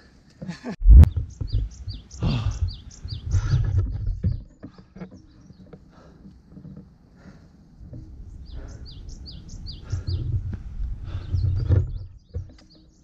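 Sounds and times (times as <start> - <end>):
loud low thump: 0.8 - 1.3
songbird chirping: 1.0 - 13.0.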